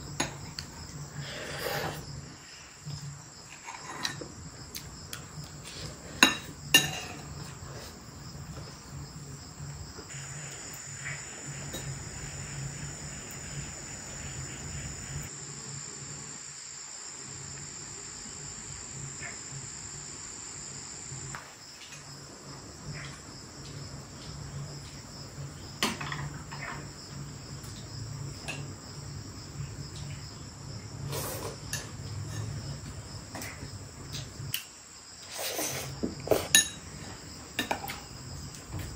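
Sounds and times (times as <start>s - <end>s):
insect chorus: 0.0s - 38.9s.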